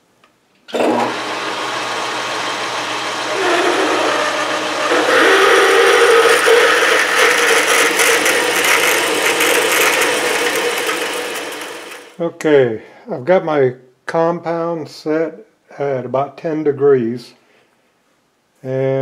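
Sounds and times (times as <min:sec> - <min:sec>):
drill cutting metal with whine: 0:00.7 - 0:12.2
metal lathe running: 0:00.7 - 0:12.2.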